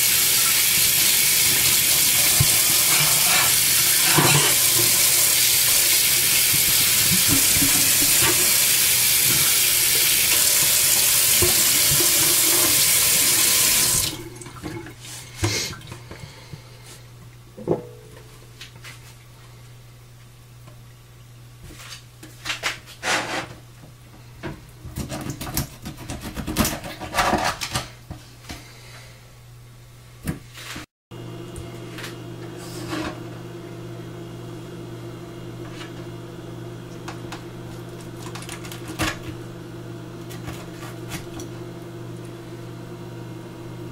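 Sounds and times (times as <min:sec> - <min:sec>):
tap running into a metal sink: 0:05.8 - 0:12.9.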